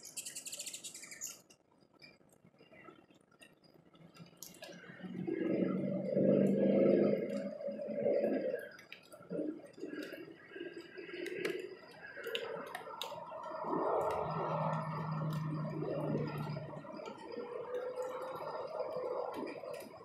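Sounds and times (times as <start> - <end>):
low steady hum: 0.0 - 20.0
raindrops ticking on plastic: 1.5 - 5.0, 8.6 - 20.0.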